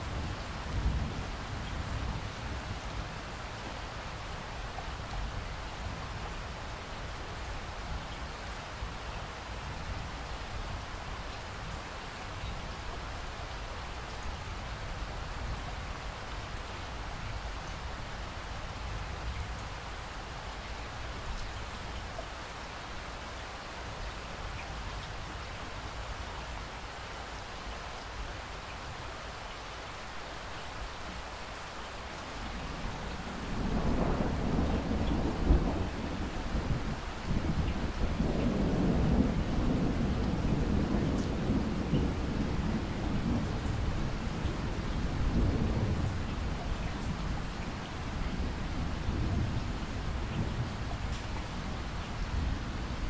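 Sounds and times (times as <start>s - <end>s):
steady rain: 0.0s - 53.0s
thunder rumbling: 33.2s - 47.3s.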